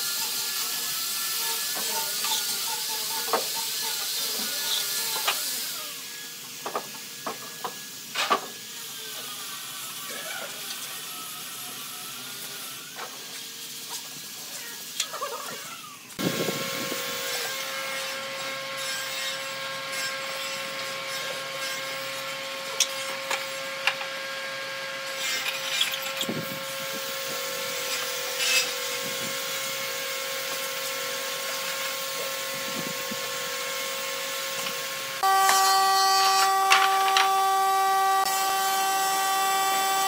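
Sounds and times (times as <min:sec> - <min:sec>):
motor whining: 0:22.6 - 0:40.0.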